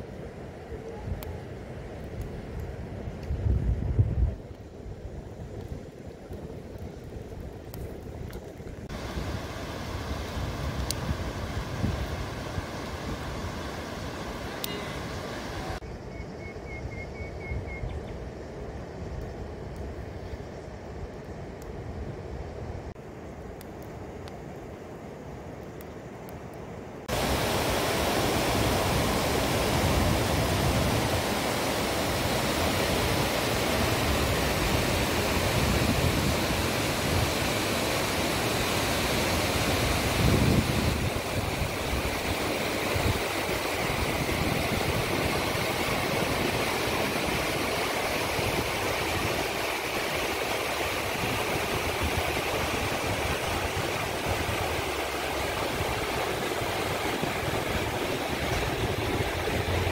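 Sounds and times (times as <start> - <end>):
mountain stream rushing over stones: 8.6 - 15.8, 27.0 - 59.9.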